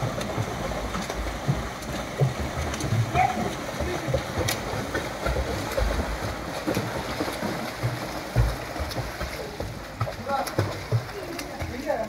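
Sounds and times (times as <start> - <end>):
sharp water slap: 0.0 - 11.8
swimmers splashing: 0.0 - 12.0.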